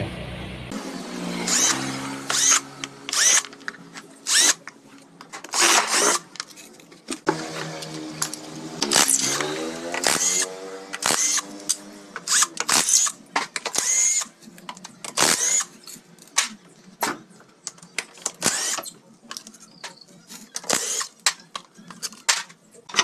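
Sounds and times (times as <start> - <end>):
power driver motor whirring: 1.4 - 3.6, 7.3 - 14.3.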